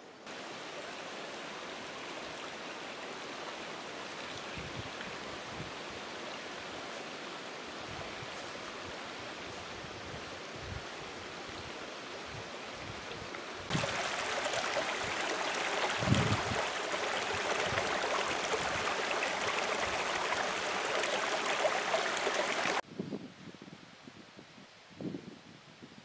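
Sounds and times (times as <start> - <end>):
faint steady hiss: 0.0 - 26.0
stream rushing over stones: 0.2 - 22.8.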